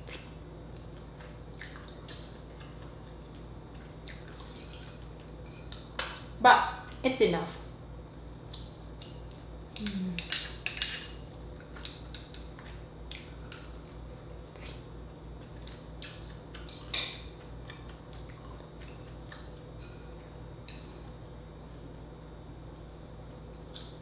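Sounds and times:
chewing and lip smacks: 0.0s - 5.9s, 11.6s - 19.7s
steady low hum: 0.0s - 24.0s.

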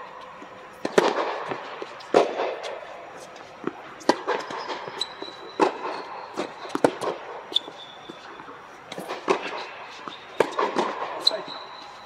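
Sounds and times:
shoe squeak: 4.4s - 6.7s, 7.5s - 8.4s, 9.9s - 12.0s.

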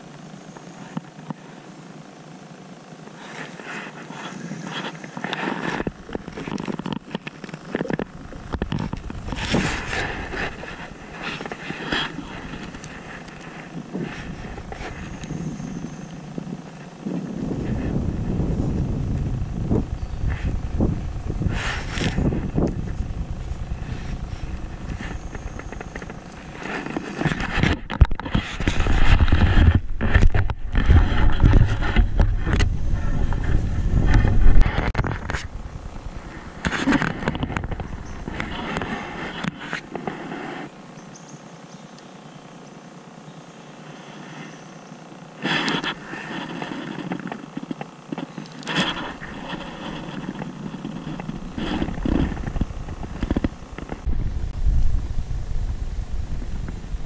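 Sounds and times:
wind buffeting microphone: 7.7s - 39.5s, 48.8s - 57.0s.

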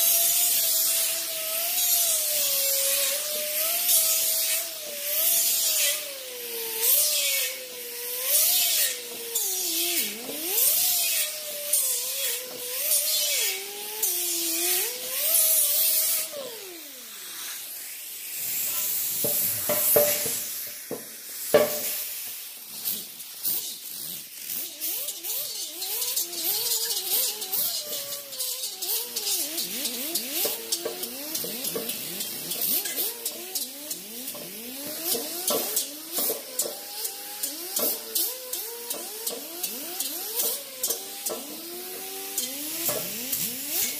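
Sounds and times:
rotary tool motor whine: 0.0s - 43.9s
knocks: 19.2s - 22.0s
wire brush scratching metal: 22.8s - 43.9s.

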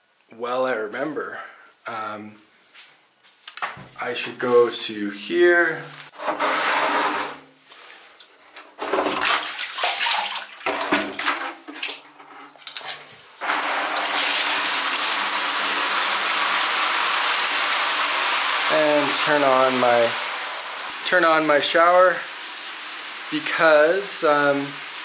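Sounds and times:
shower water pouring: 7.8s - 11.5s, 13.4s - 25.0s.

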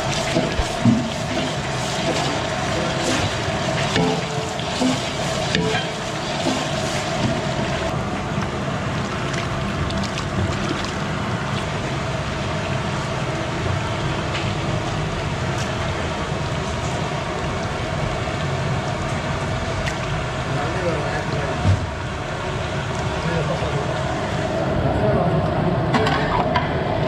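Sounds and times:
oil sizzling: 0.0s - 20.5s.

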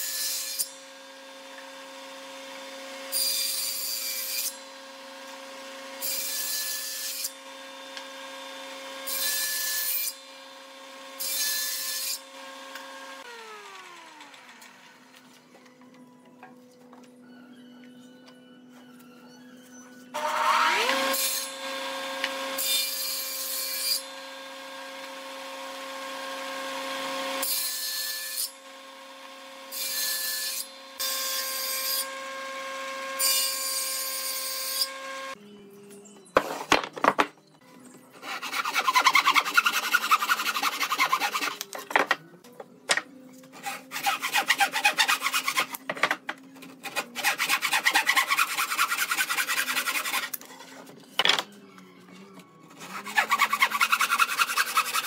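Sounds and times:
machine cutting wood: 0.1s - 17.2s, 20.1s - 35.4s, 52.1s - 55.0s
hand tool sawing wood: 20.2s - 22.7s, 38.2s - 42.0s, 43.4s - 50.9s, 52.7s - 55.0s.

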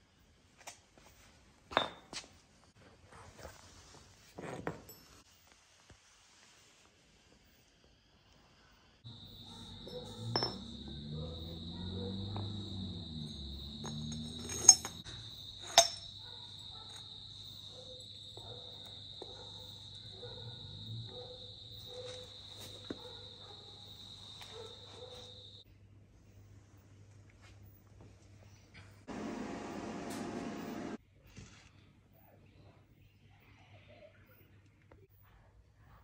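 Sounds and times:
sharp metallic clinks: 9.2s - 18.2s
metal parts knocking on concrete: 9.7s - 11.2s, 12.2s - 16.3s.

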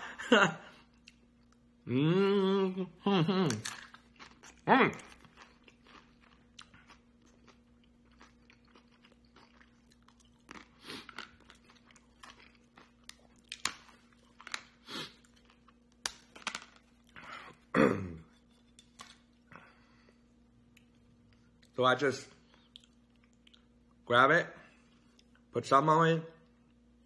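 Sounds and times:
person chewing and crunching: 0.8s - 17.7s, 22.4s - 24.0s
person humming: 1.8s - 3.7s.

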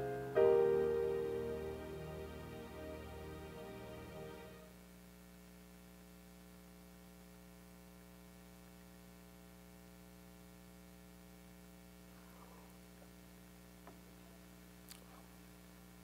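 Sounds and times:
piano note: 0.0s - 4.7s
steady electrical hum: 0.0s - 16.0s.

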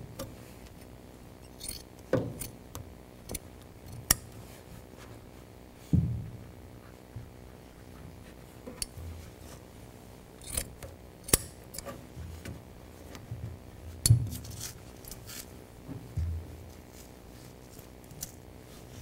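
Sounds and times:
metal tool clicks: 10.4s - 11.9s.

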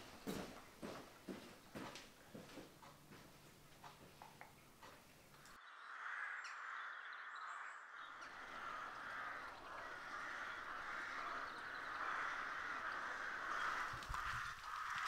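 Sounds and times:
faint small birds chirping: 3.9s - 15.0s
crows cawing: 5.9s - 15.0s.

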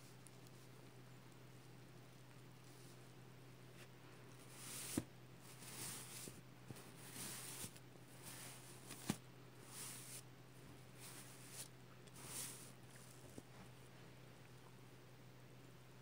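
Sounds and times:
hand brushing sequins: 4.4s - 13.7s.

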